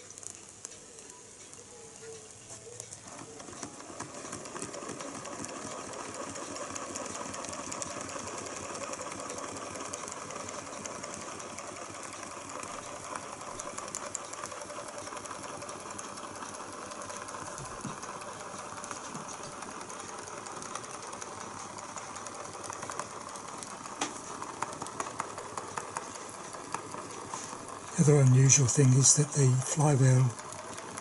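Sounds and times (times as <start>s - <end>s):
sharp clicks: 0.0s - 5.8s
stirling engine clattering: 2.9s - 31.0s.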